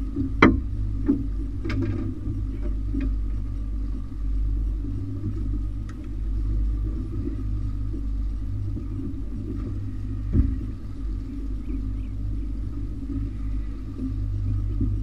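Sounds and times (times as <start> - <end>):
outboard motor running: 0.0 - 15.0
sharp knocks on boat: 0.2 - 3.1, 10.2 - 10.9.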